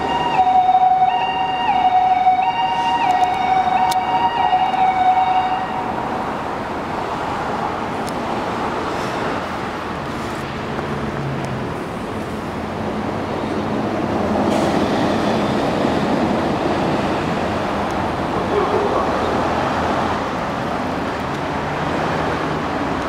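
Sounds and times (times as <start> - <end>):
ambulance siren: 0.0 - 6.4
passing road traffic: 0.0 - 23.0.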